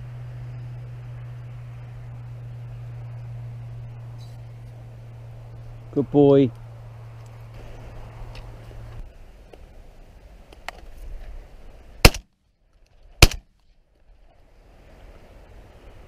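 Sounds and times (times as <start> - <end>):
shotgun shots: 12.0 - 12.3, 13.2 - 13.4.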